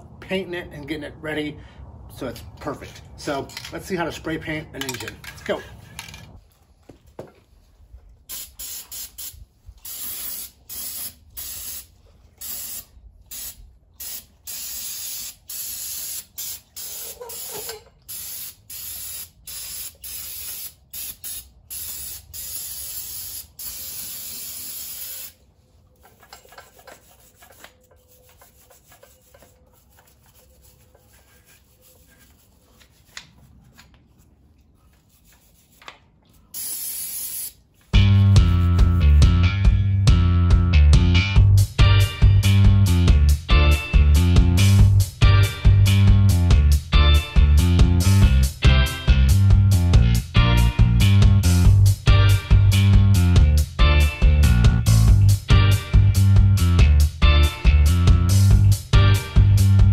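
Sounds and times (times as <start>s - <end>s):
aerosol spray hissing bursts: 8.3s - 25.4s, 36.5s - 37.6s.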